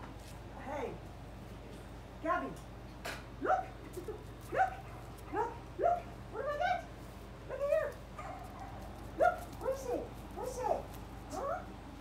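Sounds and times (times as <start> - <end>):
dog barking and yelping: 3.4 - 6.9, 7.5 - 11.8.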